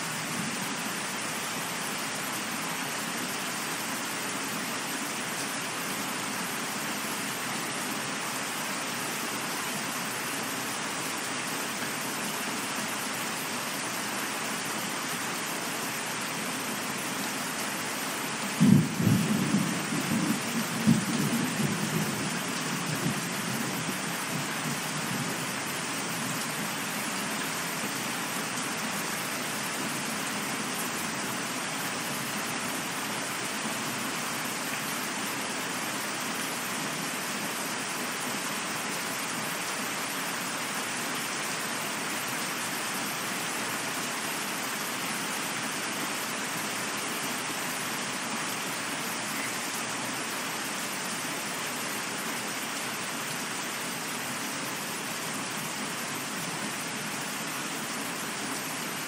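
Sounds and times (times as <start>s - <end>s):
rain hissing: 0.0s - 59.0s
thunder clap and rumble: 18.6s - 22.4s.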